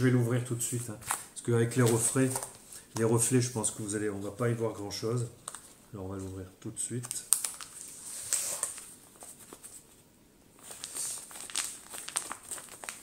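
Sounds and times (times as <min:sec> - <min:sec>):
plastic wrapping crinkling and tearing: 0:07.0 - 0:09.4, 0:10.6 - 0:13.0.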